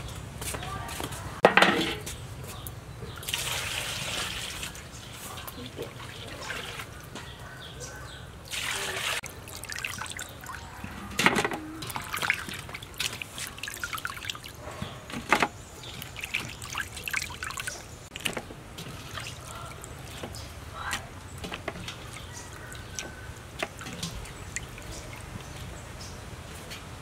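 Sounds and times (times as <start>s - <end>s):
water dripping: 2.6s - 7.5s, 8.4s - 27.0s
hands splashing in water: 8.5s - 14.6s, 15.8s - 25.8s
rush of water: 8.5s - 27.0s.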